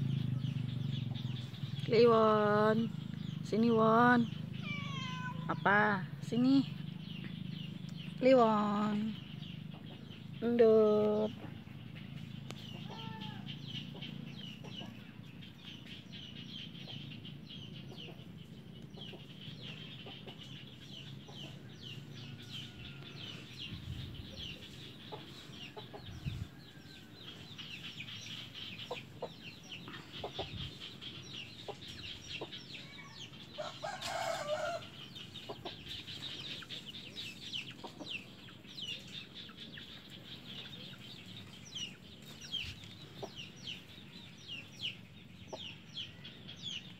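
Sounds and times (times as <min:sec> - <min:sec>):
chickens clucking: 0:09.6 - 0:10.4, 0:11.3 - 0:46.9.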